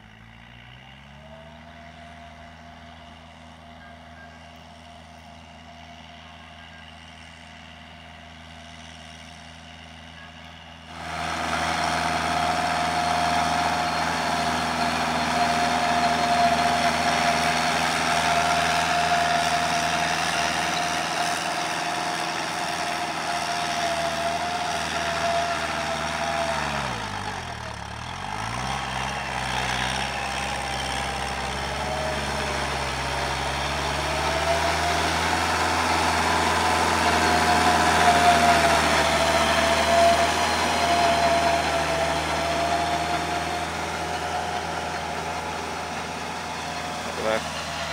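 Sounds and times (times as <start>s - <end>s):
tractor diesel engine under load: 0.0s - 47.9s
rotary tiller churning soil: 10.9s - 47.9s.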